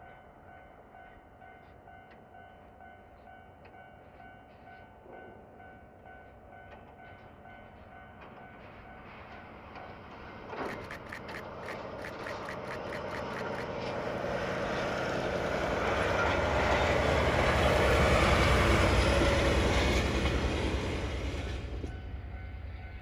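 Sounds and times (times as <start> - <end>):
diesel locomotive engine rumble: 3.6 - 23.0
wheels clicking over rail joints: 9.7 - 14.0.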